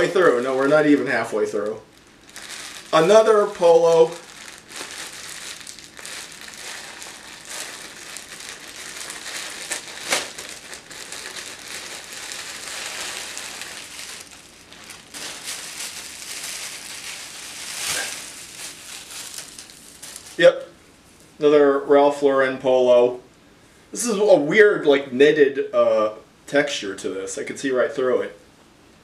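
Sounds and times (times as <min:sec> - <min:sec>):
plastic packaging crinkling: 0:00.0 - 0:20.4.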